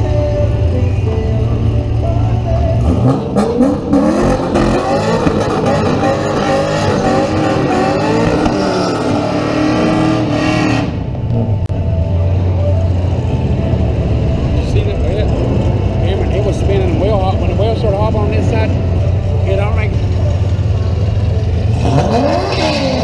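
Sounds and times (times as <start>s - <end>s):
drag car engines revving hard: 2.6s - 11.7s, 12.8s - 23.0s.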